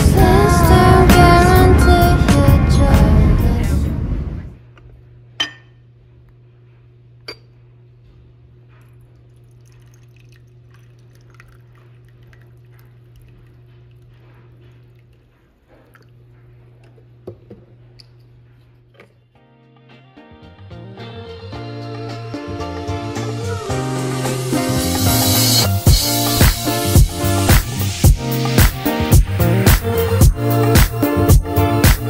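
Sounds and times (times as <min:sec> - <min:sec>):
steady low hum: 0:00.0 - 0:19.3
teapot clinking on cup: 0:05.4 - 0:05.8
tea pouring into cup: 0:08.8 - 0:16.2.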